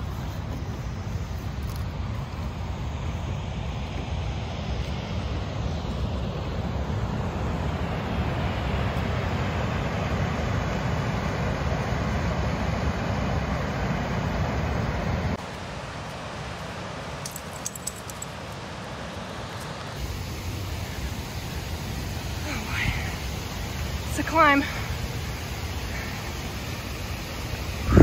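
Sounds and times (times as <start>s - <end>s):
wind buffeting microphone: 27.7s - 28.0s.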